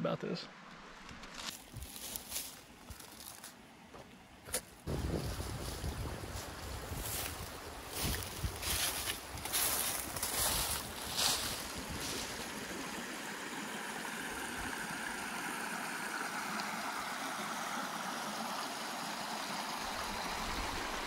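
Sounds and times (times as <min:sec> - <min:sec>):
creek water rushing: 0:00.5 - 0:21.0.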